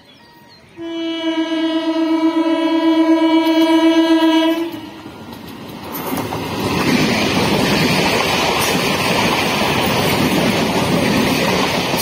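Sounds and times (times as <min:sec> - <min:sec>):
rumble of approaching train: 0:00.0 - 0:12.0
train horn blast: 0:00.8 - 0:05.3.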